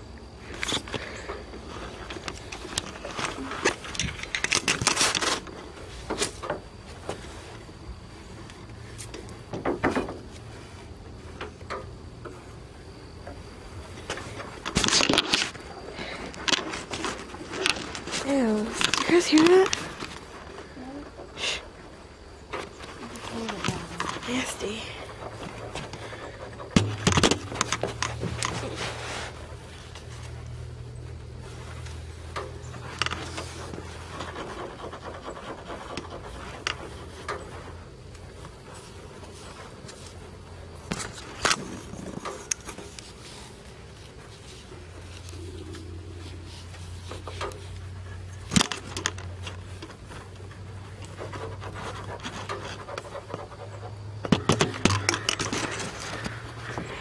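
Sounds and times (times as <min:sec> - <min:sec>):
steady low hum: 0:00.0 - 0:57.0
rustling: 0:00.3 - 0:57.0.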